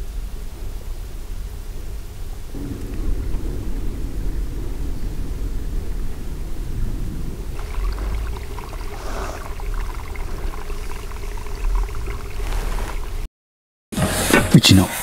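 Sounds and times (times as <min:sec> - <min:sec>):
wind buffeting the microphone: 0:00.0 - 0:13.3
scratchy rustling: 0:11.7 - 0:13.3.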